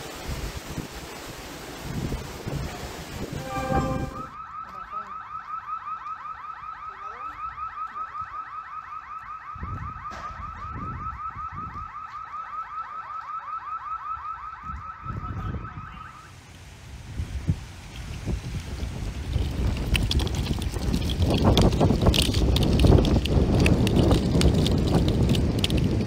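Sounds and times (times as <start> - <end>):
car alarm chirping: 12.4 - 16.3.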